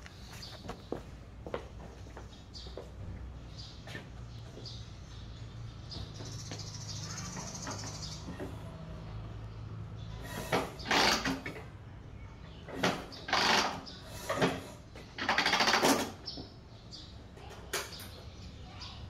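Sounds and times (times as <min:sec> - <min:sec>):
motorcycle engine kick-start cranking: 0:10.3 - 0:11.7, 0:15.2 - 0:16.2.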